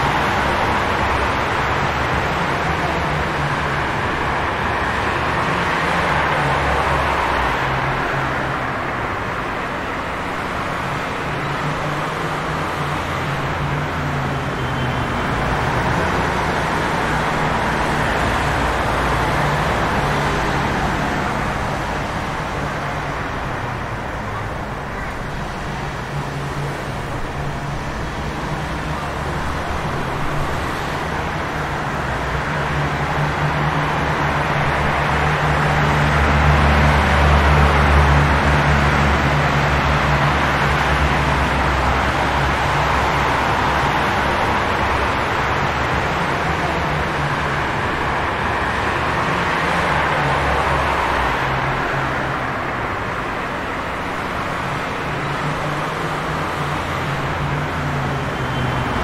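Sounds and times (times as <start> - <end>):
engines rumbling: 0.0 - 59.0
rain: 0.0 - 59.0.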